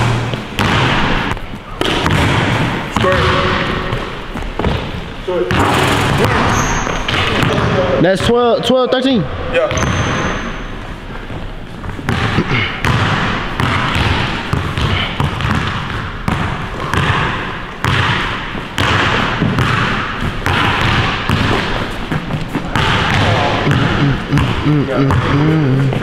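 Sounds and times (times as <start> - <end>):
basketball bouncing on wooden floor: 0.0 - 4.9, 11.8 - 25.5.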